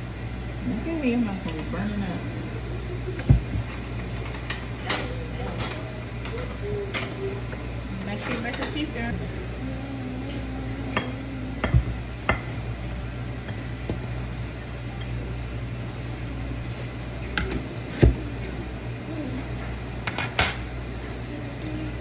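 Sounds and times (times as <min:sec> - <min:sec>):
steady low hum: 0:00.0 - 0:22.0
dishes and utensils clinking: 0:03.7 - 0:07.2.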